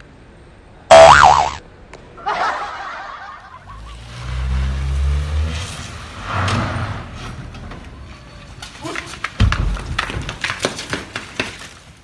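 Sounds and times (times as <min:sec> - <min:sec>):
motor vehicle engine rumble: 0:03.5 - 0:08.9.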